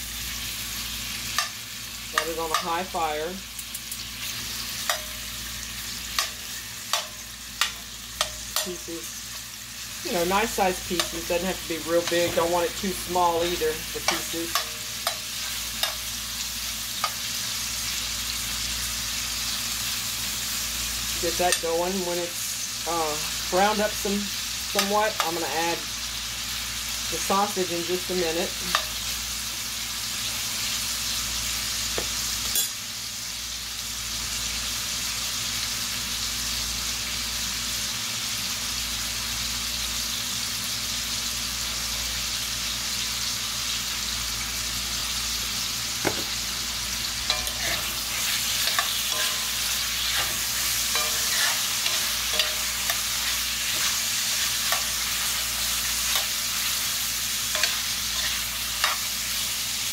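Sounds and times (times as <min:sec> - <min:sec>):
meat sizzling in a pot: 0:00.0 - 0:59.9
metal spoon scraping a pot: 0:47.3 - 0:55.4.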